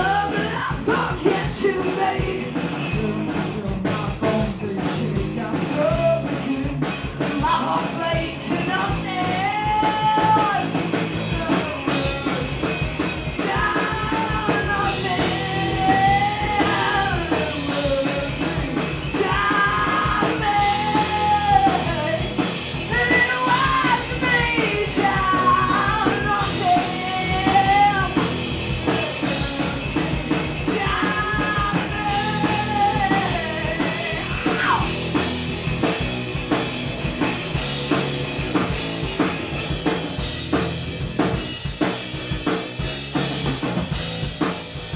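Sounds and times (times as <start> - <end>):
person singing: 0.0 - 35.2
drum kit: 0.0 - 44.9
electric bass: 0.0 - 44.9
electric guitar: 0.0 - 44.9.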